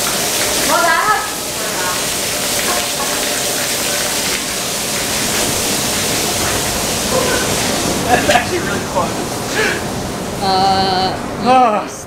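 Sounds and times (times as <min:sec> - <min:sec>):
car wash equipment rushing hiss: 0:00.0 - 0:11.0.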